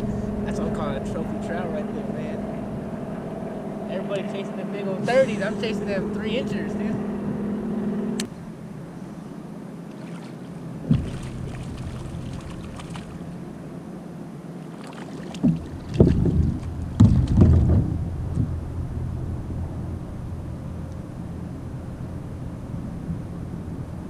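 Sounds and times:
low steady hum: 0.0 - 24.0
knocks on kayak hull: 10.8 - 11.7, 15.3 - 18.6.

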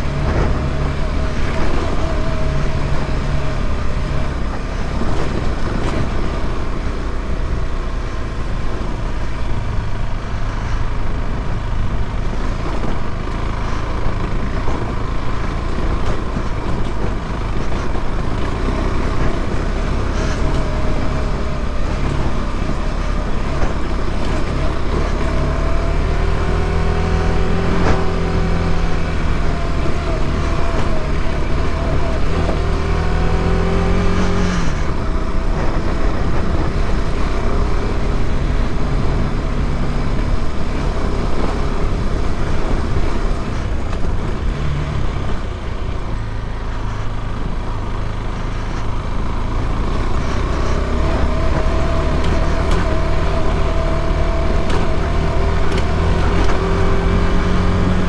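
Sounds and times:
motorcycle engine at low speed: 0.0 - 58.0.

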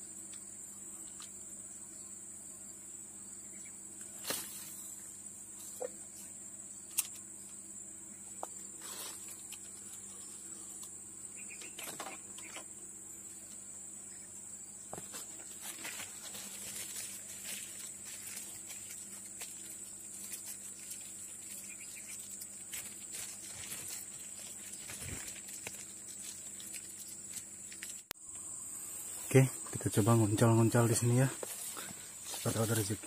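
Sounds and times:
high-pitched insect chorus: 0.0 - 33.0
faint ticks and rustles: 0.2 - 1.5, 8.3 - 14.2, 14.9 - 28.5, 30.8 - 33.0.

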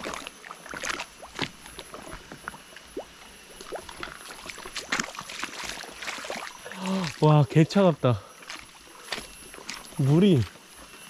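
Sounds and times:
footsteps on wooden planks: 0.0 - 2.6, 3.9 - 6.3, 8.4 - 10.6.

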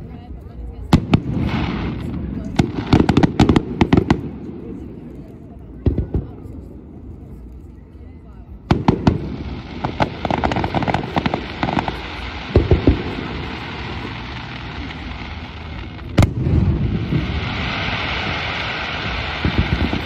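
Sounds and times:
firework shells booming: 8.7 - 20.0
steady hiss of falling stars: 9.1 - 20.0.

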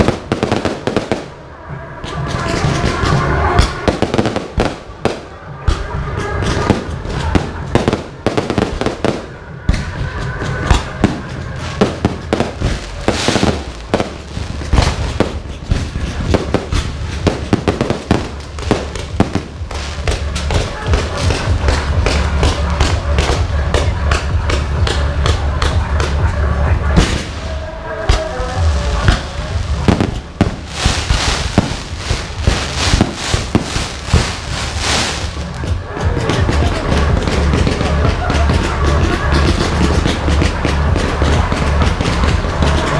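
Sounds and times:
fireworks hissing crackle: 0.0 - 1.5, 6.4 - 23.4, 28.2 - 42.9
fireworks bangs: 0.0 - 26.2, 26.9 - 42.9.

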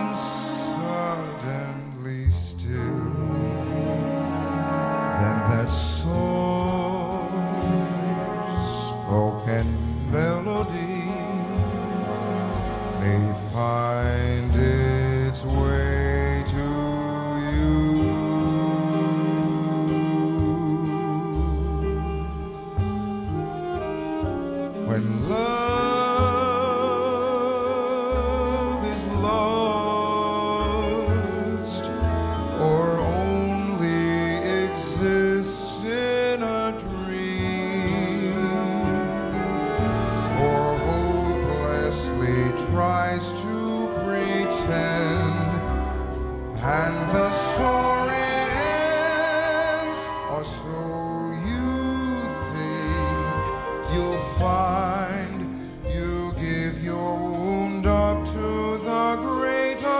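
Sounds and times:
man singing with vibrato: 0.0 - 22.6, 24.7 - 59.9
jazz orchestra: 0.0 - 59.9.

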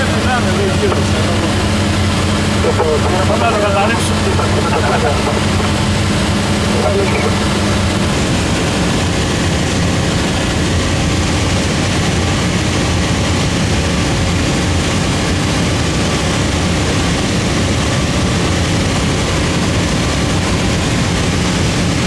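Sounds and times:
propeller plane engine drone: 0.0 - 22.0.

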